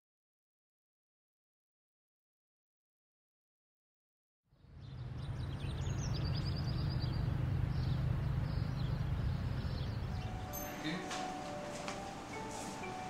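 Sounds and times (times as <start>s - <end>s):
low background rumble: 4.6s - 10.5s
birds chirping and trilling: 4.6s - 13.0s.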